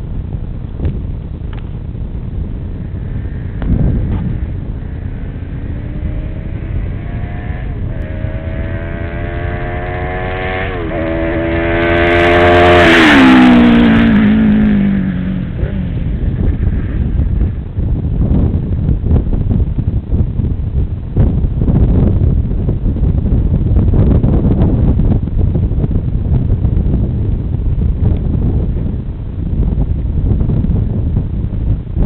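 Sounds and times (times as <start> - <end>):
motorcycle engine accelerating past: 2.8 - 17.7.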